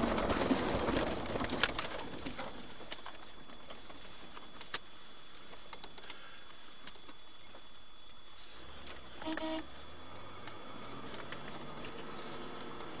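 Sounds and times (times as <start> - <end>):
road and engine noise in car cabin: 0.0 - 13.0
brief pitched tone: 9.2 - 9.7.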